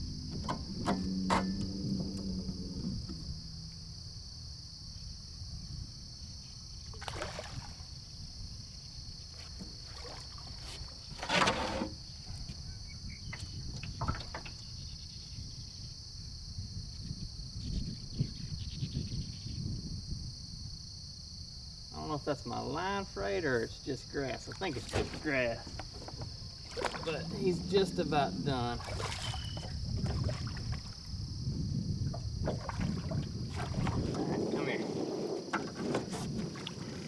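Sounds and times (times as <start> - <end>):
water and boat noise: 0.0 - 14.9, 22.0 - 37.0
insect chorus: 0.0 - 37.0
fish splashing: 7.0 - 7.8, 26.6 - 31.1.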